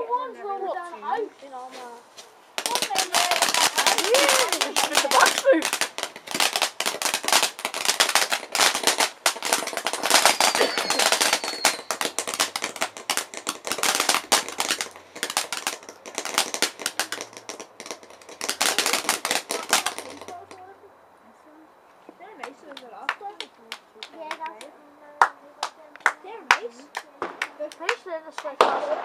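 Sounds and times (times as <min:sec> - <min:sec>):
fireworks bangs and crackles: 0:01.7 - 0:20.7, 0:25.6 - 0:29.0.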